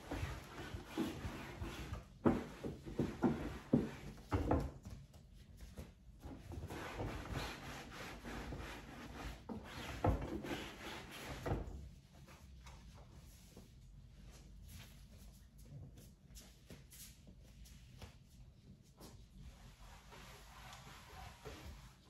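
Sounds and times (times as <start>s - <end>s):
cloth rubbing fabric lampshade: 19.2s - 22.0s.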